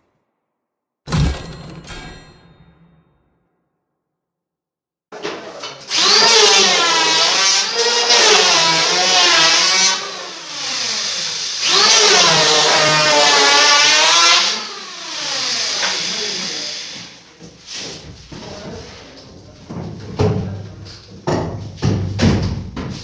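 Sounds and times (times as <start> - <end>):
electric planer cutting wood: 5.9 - 17.2.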